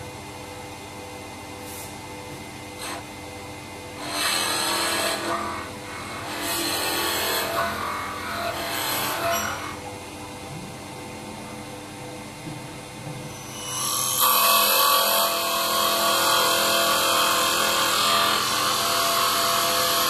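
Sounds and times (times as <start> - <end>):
lathe motor running: 2.8 - 9.9
cutting tool shaving wood: 4.0 - 9.8, 14.2 - 20.0.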